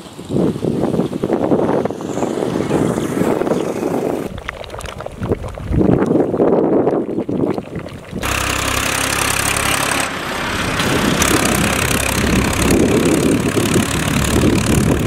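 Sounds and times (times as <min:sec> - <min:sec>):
tractor engine running: 0:08.2 - 0:15.0.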